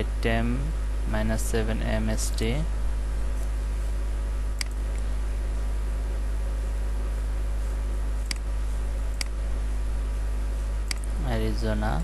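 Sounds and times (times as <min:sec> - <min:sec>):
low electrical hum: 0:00.0 - 0:12.0
computer mouse click: 0:04.6 - 0:05.0, 0:08.2 - 0:08.5, 0:09.1 - 0:09.4, 0:10.8 - 0:11.1.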